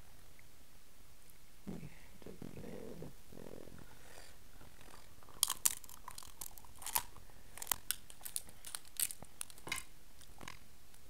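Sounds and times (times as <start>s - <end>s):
crab shell cracking: 5.2s - 10.6s.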